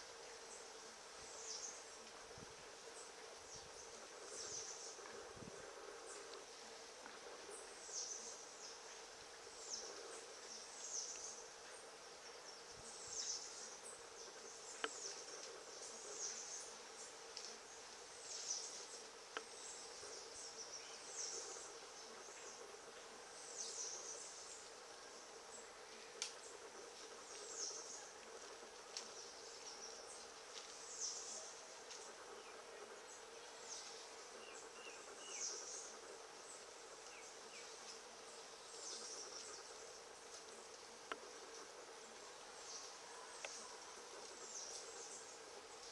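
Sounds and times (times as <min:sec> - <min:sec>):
faint steady hum: 0:00.0 - 0:45.9.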